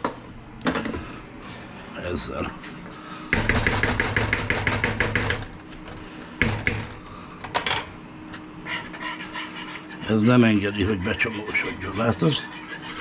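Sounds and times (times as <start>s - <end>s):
sharp knocks: 3.3s - 5.4s.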